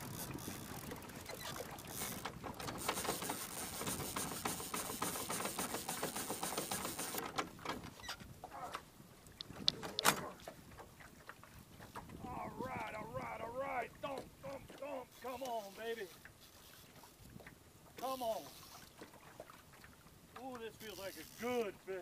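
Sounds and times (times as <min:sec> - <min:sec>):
fishing reel ratcheting: 0:00.0 - 0:07.2, 0:18.0 - 0:19.0, 0:20.8 - 0:21.6.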